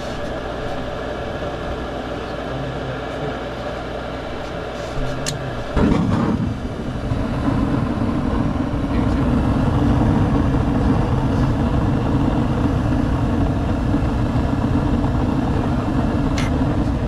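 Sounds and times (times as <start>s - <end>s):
gas furnace low rumble: 0.0s - 17.0s.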